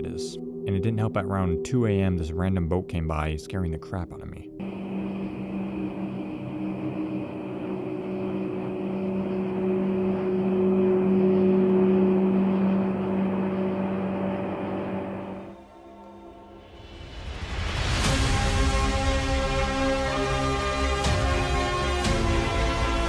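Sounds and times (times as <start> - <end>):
motorboat engine humming: 4.6 - 16.4.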